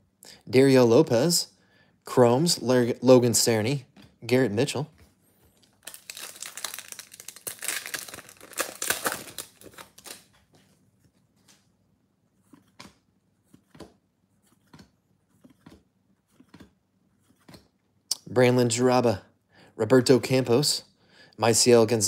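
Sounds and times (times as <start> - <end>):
foil wrapper crinkling and tearing: 5.6 - 10.3.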